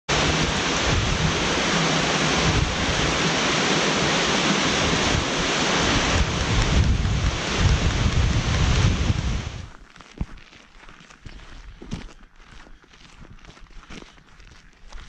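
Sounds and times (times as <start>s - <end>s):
waterfall rushing: 0.1s - 9.7s
wind rumbling on microphone: 0.1s - 10.4s.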